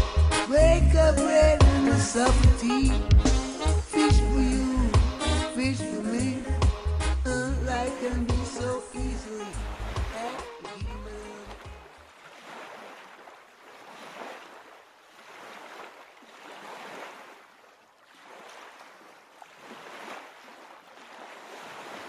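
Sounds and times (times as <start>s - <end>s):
waves washing in: 7.8s - 22.0s.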